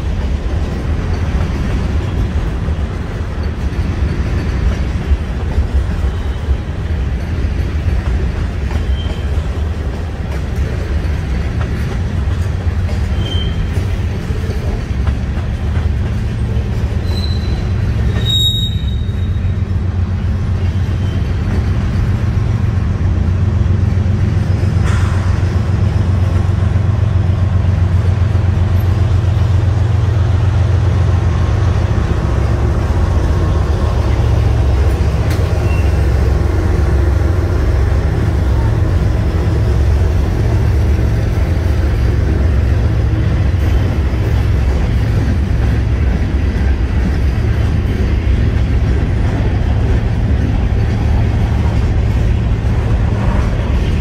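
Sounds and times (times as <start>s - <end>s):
diesel locomotive passing: 0.0s - 54.0s
freight train rumbling on rails: 0.0s - 54.0s
high wheel squeals: 8.8s - 9.5s, 13.0s - 13.9s, 16.9s - 19.7s, 20.5s - 21.5s, 35.4s - 36.3s.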